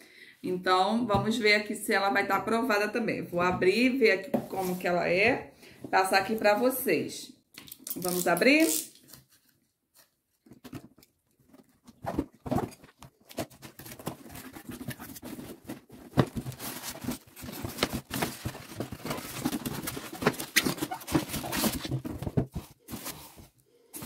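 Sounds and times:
plastic wrapping crinkling: 12.6 - 23.3.

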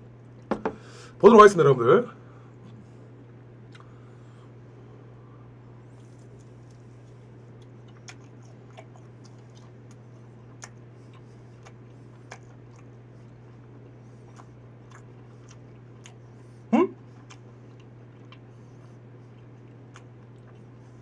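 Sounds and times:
person chewing crunchy food: 5.8 - 21.0.

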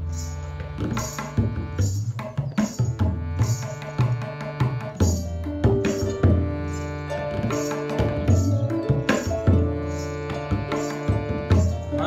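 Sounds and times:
harmonium notes: 0.0 - 12.0
tabla drums: 0.0 - 12.0
plucked harp notes: 5.0 - 12.0.

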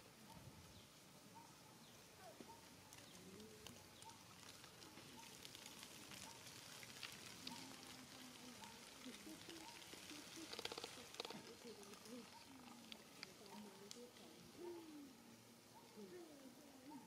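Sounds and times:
faint clicks: 2.4 - 14.4.

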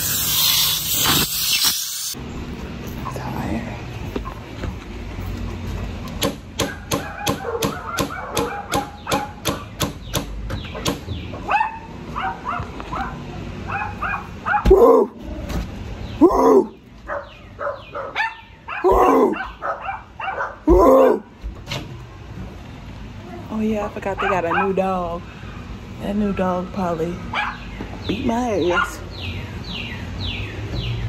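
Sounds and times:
dog barking loudly: 6.7 - 9.5, 11.4 - 15.2, 16.6 - 21.3, 24.2 - 24.9, 27.3 - 27.7, 28.7 - 29.0.

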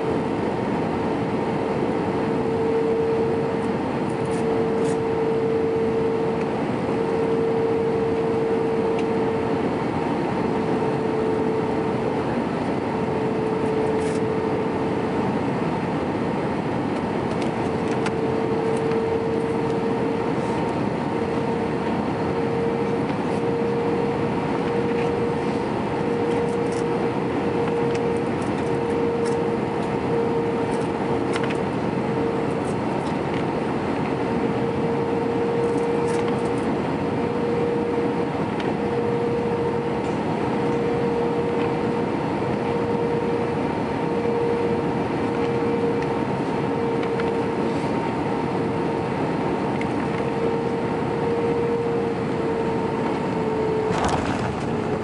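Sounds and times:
airplane cabin airflow and engine: 0.0 - 55.0
wavering droning tone: 1.5 - 15.0, 17.6 - 32.8, 33.8 - 47.9.

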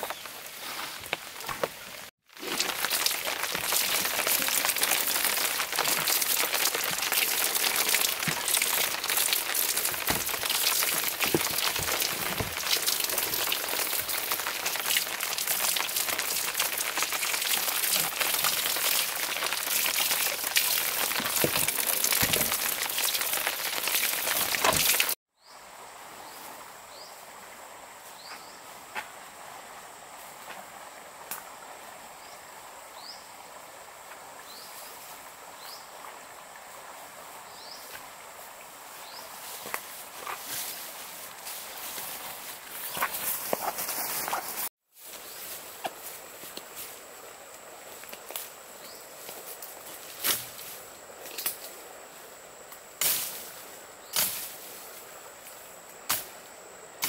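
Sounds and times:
heavy rain pattering: 1.5 - 25.2.

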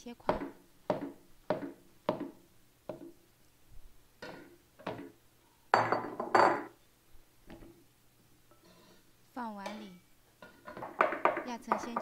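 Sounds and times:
cleaver chopping on wooden board: 0.3 - 3.1
glass bowl clinking on counter: 5.7 - 6.7.

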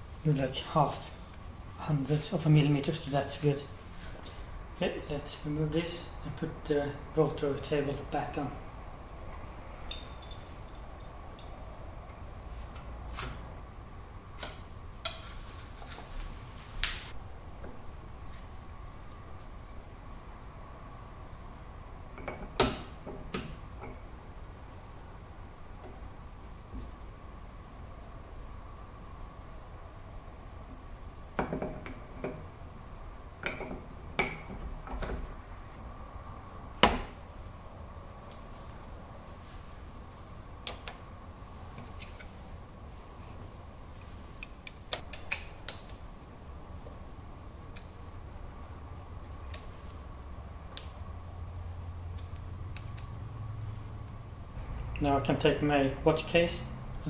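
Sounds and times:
metal clinks and knocks: 9.8 - 11.7.

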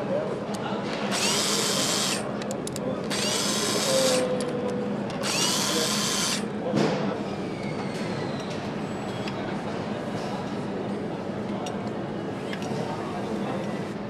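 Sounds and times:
power tool spinning up: 1.1 - 2.2, 3.1 - 4.3, 5.2 - 6.4.

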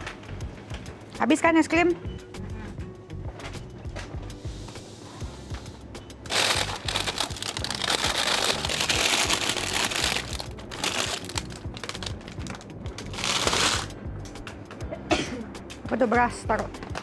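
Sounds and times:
music: 0.0 - 17.0
plastic wrappers crinkling: 6.3 - 13.9.

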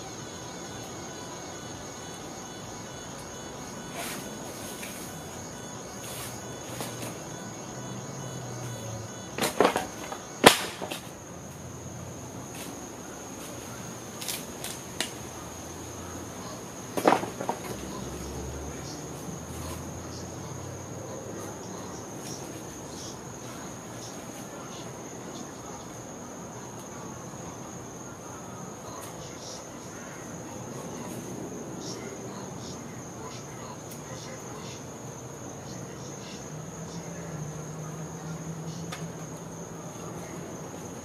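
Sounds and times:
high cricket trill: 0.0 - 41.0
wooden pallet boards knocking: 17.0 - 17.8.

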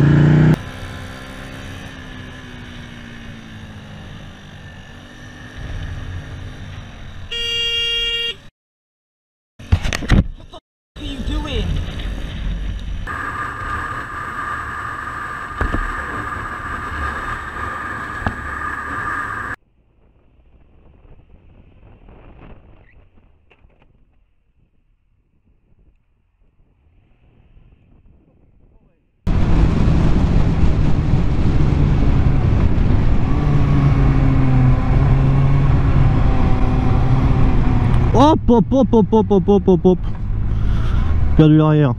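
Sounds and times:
motorcycle engine: 0.0 - 8.3, 29.3 - 41.5
wind noise: 20.5 - 38.8.

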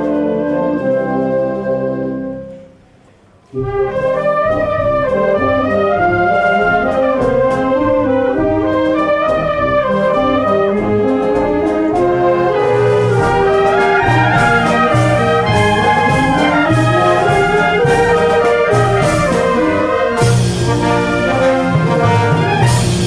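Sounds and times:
concert band playing: 10.6 - 23.0
percussion strokes: 11.8 - 23.0.

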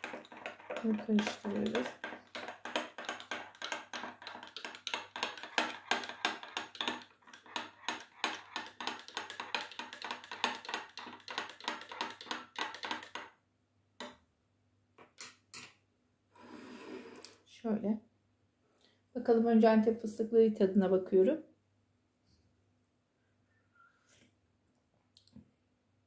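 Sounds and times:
teaspoon clinking in a cup: 0.0 - 13.1.

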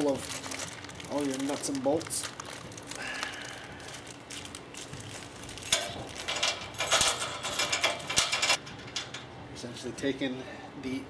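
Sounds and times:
bolts and nuts clinking: 5.7 - 9.3.

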